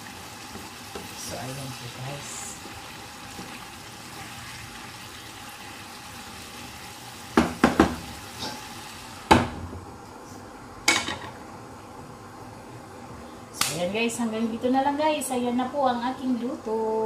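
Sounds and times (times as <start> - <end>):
sauce bubbling in a frying pan: 0.0 - 9.5
knocks against a pan: 7.4 - 8.0.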